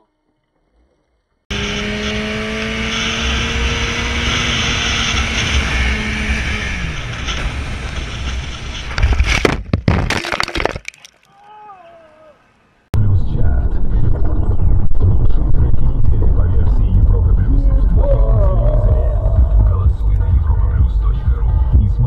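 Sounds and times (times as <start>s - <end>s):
motorcycle engine: 1.5s - 9.0s
motorcycle crashing onto gravel: 7.1s - 11.0s.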